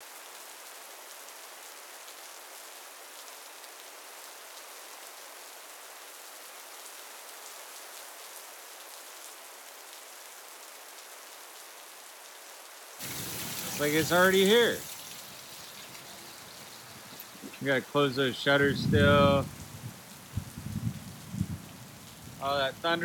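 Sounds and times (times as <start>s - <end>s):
steady rain hiss: 0.0s - 23.0s
raindrops ticking: 13.0s - 23.0s.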